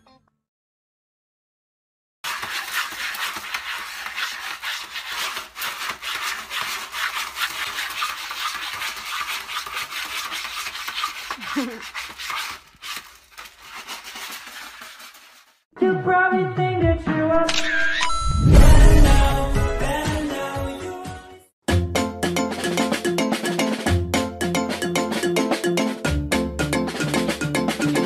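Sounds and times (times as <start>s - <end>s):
cat scratching in pellet litter: 2.2s - 15.6s.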